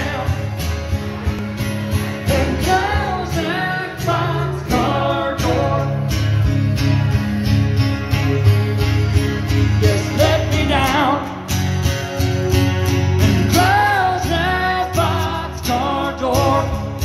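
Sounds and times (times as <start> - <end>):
man singing: 0.0 - 0.8, 2.1 - 6.2, 9.7 - 11.5, 13.3 - 17.0
acoustic guitar strumming: 0.0 - 17.0.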